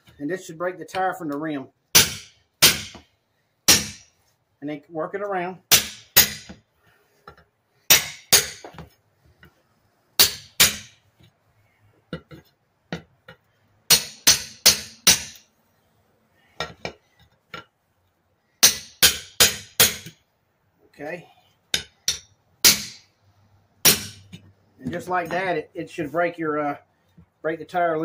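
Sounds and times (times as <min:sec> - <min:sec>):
hammer striking metal bar: 0:02.0 - 0:03.0, 0:03.7 - 0:04.1, 0:05.7 - 0:06.6, 0:07.9 - 0:08.8, 0:10.2 - 0:11.0, 0:13.9 - 0:15.4, 0:18.6 - 0:20.2, 0:21.7 - 0:23.1, 0:23.8 - 0:24.4.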